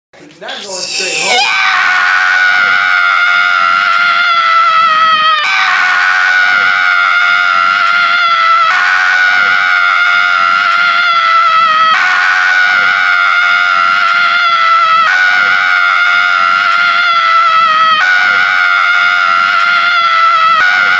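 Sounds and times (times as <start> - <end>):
man screaming: 0.5 - 8.7.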